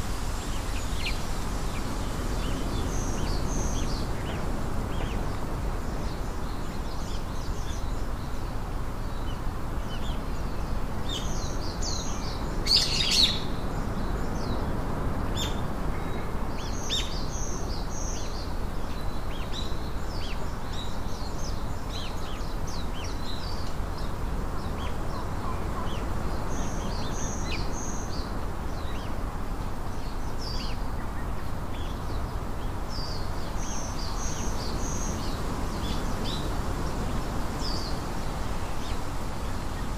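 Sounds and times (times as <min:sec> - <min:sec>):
small birds chirping: 0:00.0 - 0:39.9
steady background hiss: 0:00.0 - 0:39.9.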